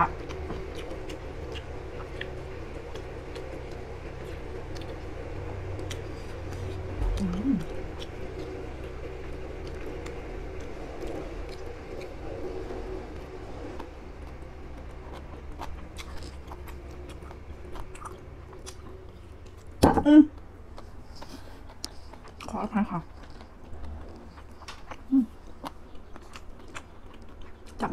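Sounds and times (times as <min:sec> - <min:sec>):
person chewing: 0:00.0 - 0:27.9
steady background hum: 0:00.0 - 0:27.9
person humming: 0:07.0 - 0:07.8.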